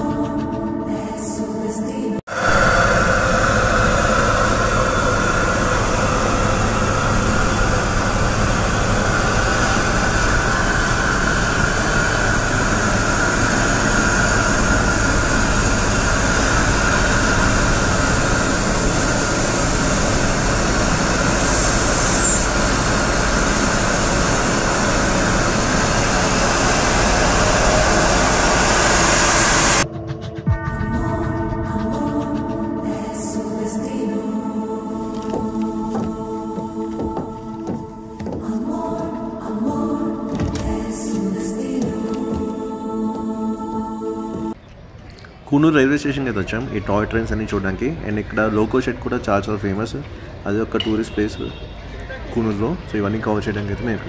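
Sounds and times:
train running noise: 0.0 - 54.0
loud hiss of steam: 2.3 - 29.8.

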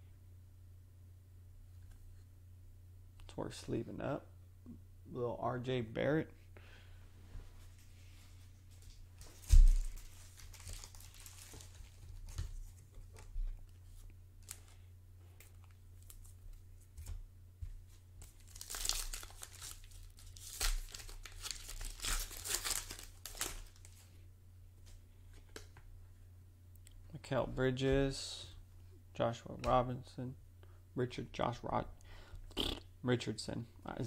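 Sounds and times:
plastic wrapper tearing and crinkling: 8.8 - 13.3, 14.4 - 14.8, 18.2 - 24.0.

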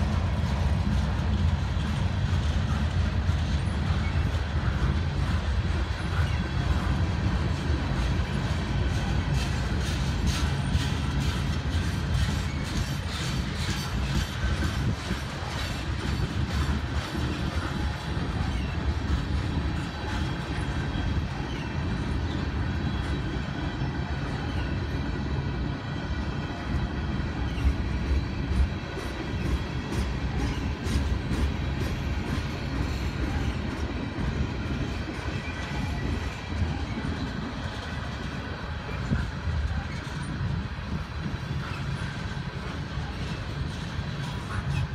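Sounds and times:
freight train wheels rumbling on rails: 0.0 - 44.9.

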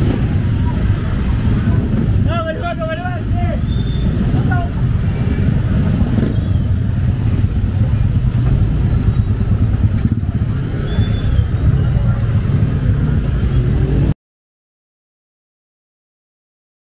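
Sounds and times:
low rumble of road vehicles: 0.0 - 14.1
faint voices: 9.4 - 14.0.

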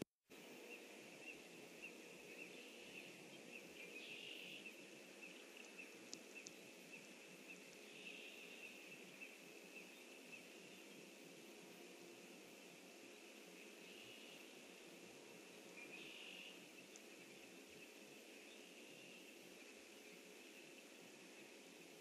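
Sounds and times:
faint pond ambience: 0.0 - 22.0.

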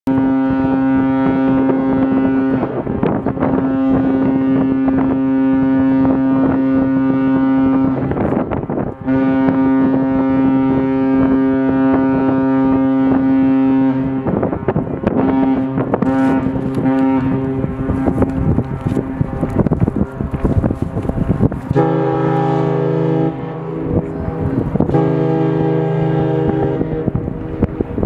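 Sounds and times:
ship horn blasts: 0.1 - 28.0.

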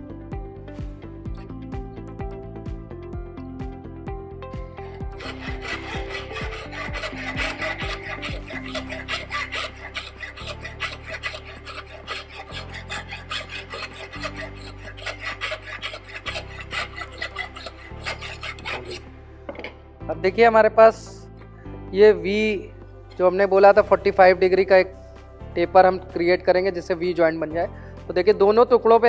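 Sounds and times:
hand file rasping on metal: 4.8 - 19.1.

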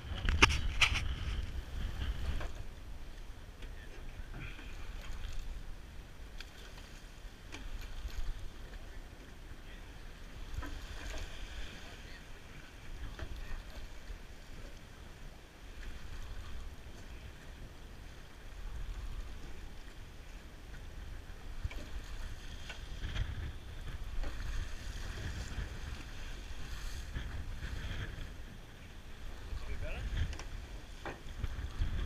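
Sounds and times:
wind buffeting microphone: 0.0 - 6.3, 15.7 - 32.0
water slapping against hull: 0.0 - 32.0.

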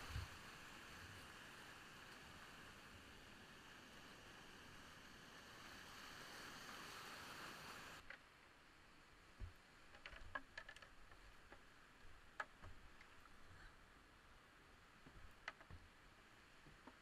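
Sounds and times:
whitewater rushing: 0.0 - 8.0
kayak and paddle bumping boulders: 9.4 - 13.7, 14.9 - 17.0.

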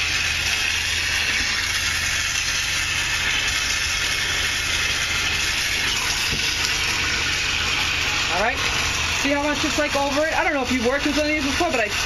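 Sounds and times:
electric water pump humming: 0.0 - 12.0
water running from a hose into a tub: 0.0 - 12.0.

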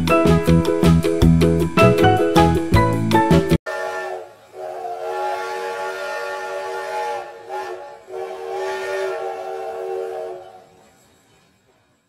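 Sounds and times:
steam train whistle blasts: 3.7 - 10.8.

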